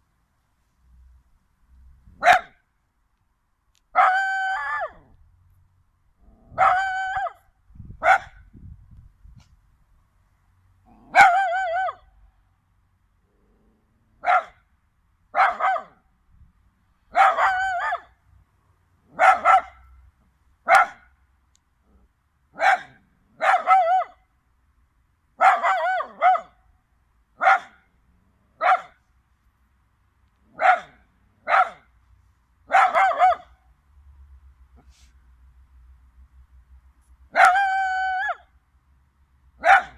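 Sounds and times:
dog crowing like a rooster: 4.0 - 5.1, 6.6 - 7.4, 11.1 - 12.0, 17.2 - 18.1, 25.4 - 26.5, 37.4 - 38.5.

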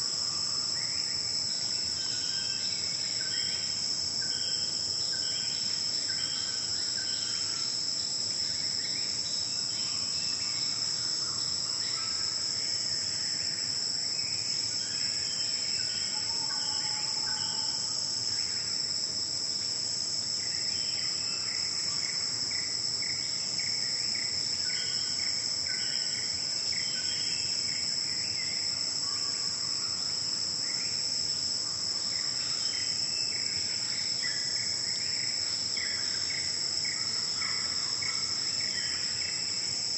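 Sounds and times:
insect chorus: 0.0 - 39.9.

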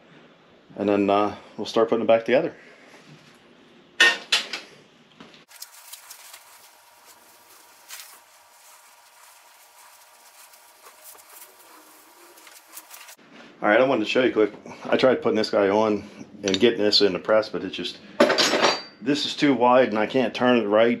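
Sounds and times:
rag rubbing a metal shaft: 7.3 - 13.2.

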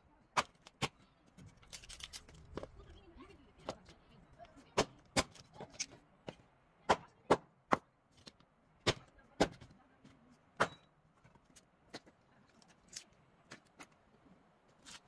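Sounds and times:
hatchet splitting firewood: 0.3 - 2.8, 4.7 - 9.7, 10.5 - 13.9.

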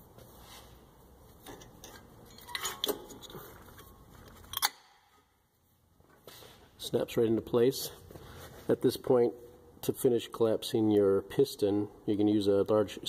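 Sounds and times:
metallic clinks of brake parts: 1.4 - 4.9.

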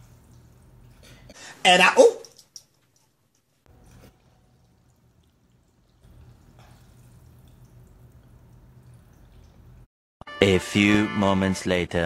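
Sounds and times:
low steady hum: 3.7 - 9.9.

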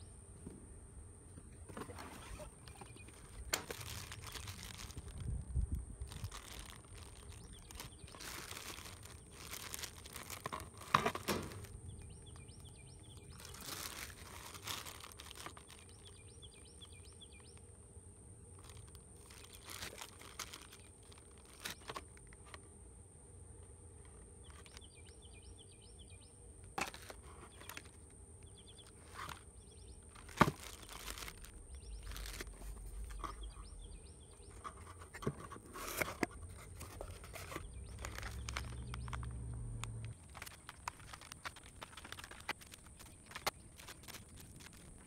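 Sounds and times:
small birds chirping: 1.4 - 17.9, 18.5 - 22.0, 24.0 - 45.0
plastic bags crinkling: 1.8 - 17.5, 18.6 - 22.4, 28.8 - 33.6, 34.5 - 45.0.

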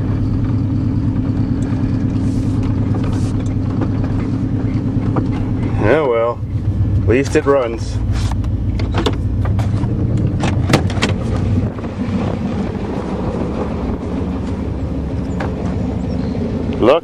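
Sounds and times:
pickup engine idling: 0.0 - 17.0
sharp clicks and knocks: 2.6 - 5.7, 8.3 - 11.5.

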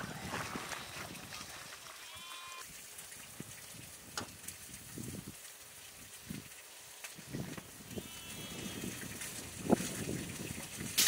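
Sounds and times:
sheep bleating: 2.0 - 2.6, 7.9 - 8.9.

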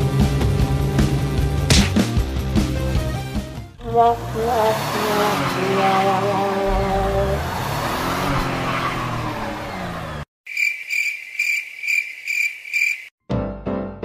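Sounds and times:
background music: 0.0 - 5.4, 13.3 - 14.0
cricket chirp sound effect: 10.5 - 13.1.

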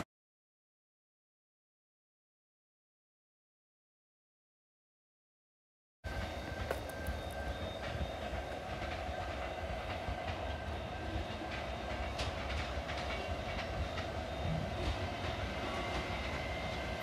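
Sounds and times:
electric train approaching: 6.1 - 17.0.

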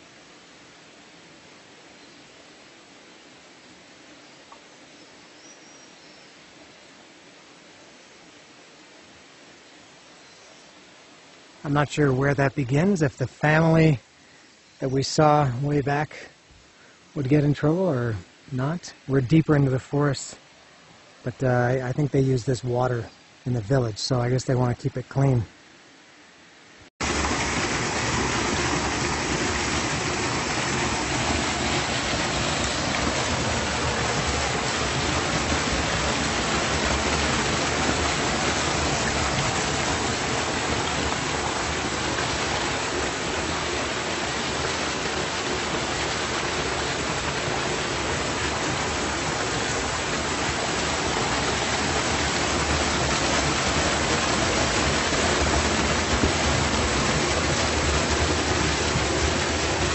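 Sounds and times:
waterfall rushing: 27.0 - 59.9.

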